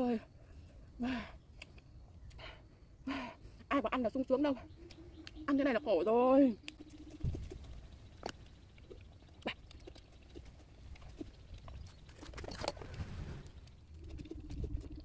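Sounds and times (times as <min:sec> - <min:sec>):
sharp clicks: 0:06.6 - 0:15.0.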